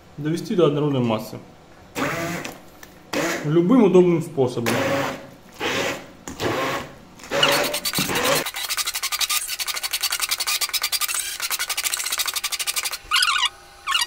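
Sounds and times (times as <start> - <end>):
stick blender rattling scrape: 7.3 - 13.4.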